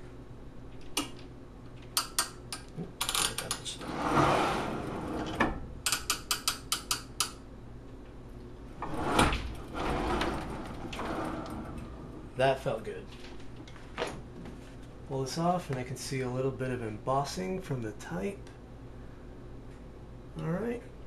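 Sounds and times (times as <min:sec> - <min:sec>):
press carriage rolling: 0:03.4 - 0:05.7, 0:08.7 - 0:12.4.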